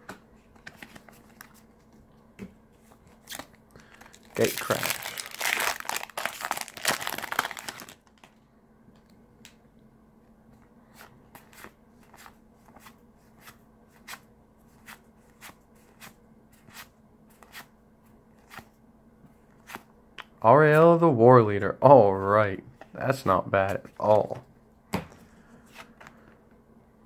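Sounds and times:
foil wrapper crinkling and tearing: 0:03.3 - 0:08.3.

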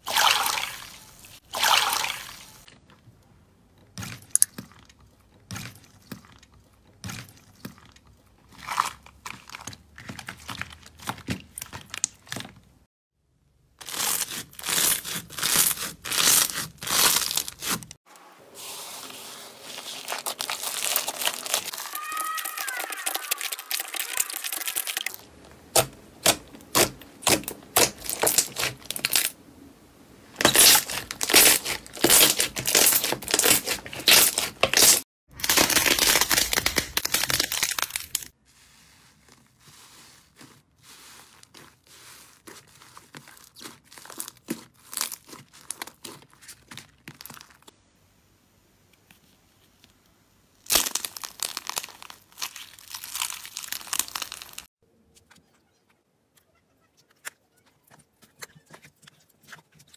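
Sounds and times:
crunchy slime crushed: 0:04.0 - 0:12.5, 0:13.8 - 0:18.0, 0:19.7 - 0:29.4, 0:30.4 - 0:38.4, 0:40.0 - 0:47.7, 0:50.6 - 0:54.7
foamy slime crackling: 0:13.9 - 0:29.4, 0:30.2 - 0:47.7, 0:50.7 - 0:54.7.

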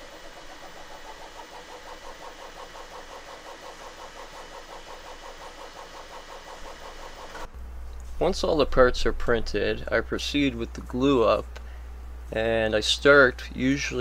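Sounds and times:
stepper motors whining: 0:00.0 - 0:07.5.

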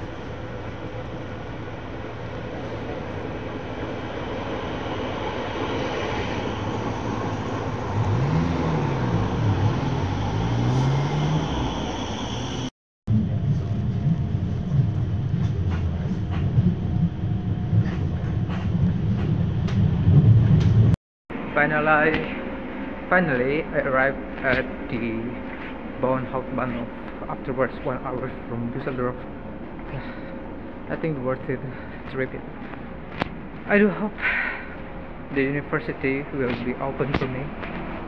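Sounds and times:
light-rail train motor whine: 0:00.0 - 0:20.1
train interior rumble: 0:00.0 - 0:21.0.

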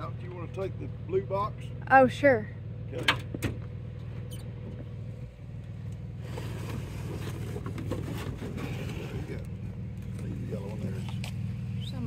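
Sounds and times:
box scraping across bed liner: 0:06.2 - 0:09.4.

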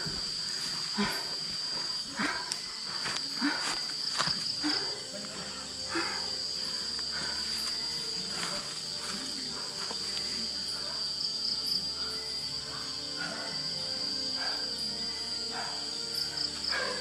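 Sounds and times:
night insects chirring: 0:00.0 - 0:17.0
footsteps rustling through grass: 0:06.9 - 0:10.6.

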